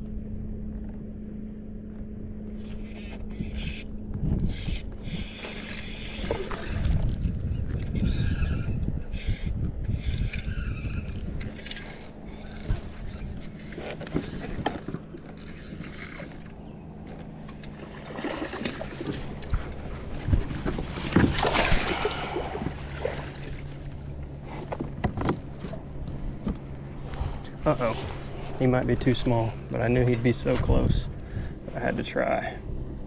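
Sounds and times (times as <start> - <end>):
low hum: 0.0 - 33.0
kayak gear clicking and rattling: 2.9 - 8.2, 9.1 - 21.8, 22.5 - 26.8
water splashing: 17.7 - 19.5, 20.4 - 24.2.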